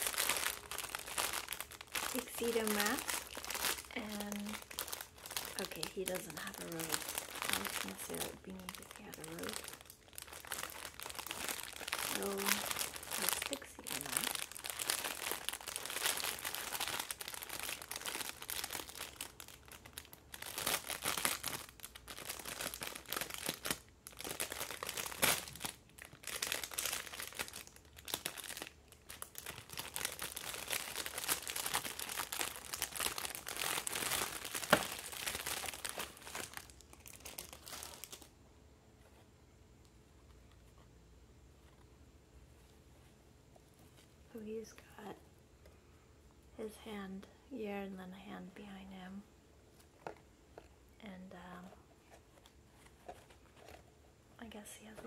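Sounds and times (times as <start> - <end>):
plastic bag crinkling: 0.0 - 38.3, 51.3 - 53.9.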